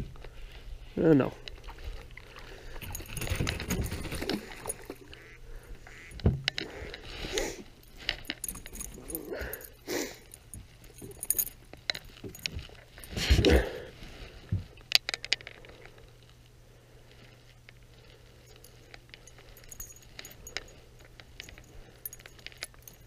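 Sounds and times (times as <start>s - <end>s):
metallic clicks and jingles: 2.4s - 5.2s, 6.5s - 13.2s, 18.0s - 23.0s.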